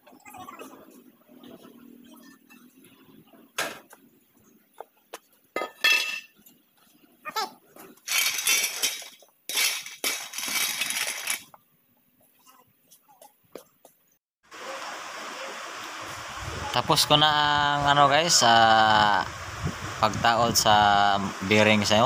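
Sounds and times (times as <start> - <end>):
metal tools clinking: 5.6 - 6.4, 8.0 - 11.5.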